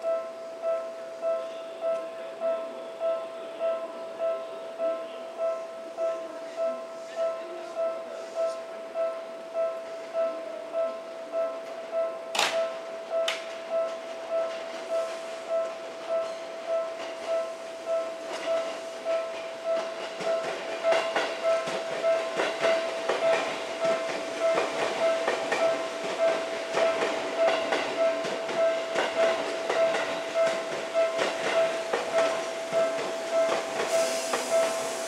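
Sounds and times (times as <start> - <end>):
train wheels clicking over joints: 12.3 - 35.0.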